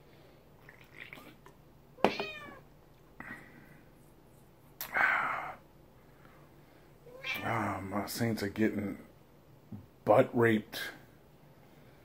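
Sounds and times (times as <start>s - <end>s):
cat meowing: 2.0s - 2.7s, 7.0s - 7.8s.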